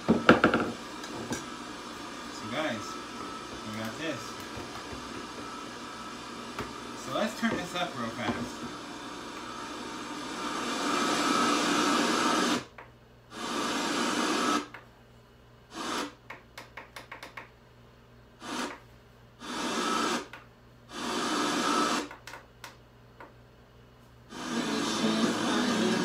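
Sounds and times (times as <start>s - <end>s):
radio static hissing: 0.0s - 9.6s.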